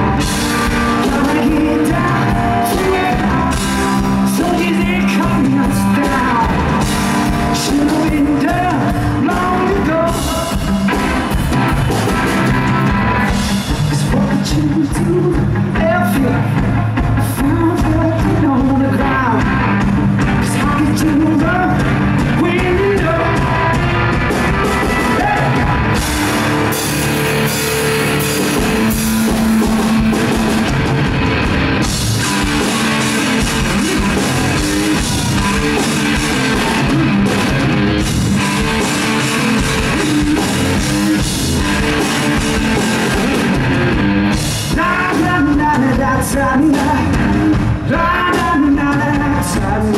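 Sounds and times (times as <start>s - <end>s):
man singing: 0.0s - 11.1s, 12.8s - 23.8s, 24.8s - 25.8s, 32.2s - 37.5s, 38.4s - 41.3s, 44.6s - 49.9s
drum kit: 0.0s - 49.9s
electric guitar: 0.0s - 49.9s.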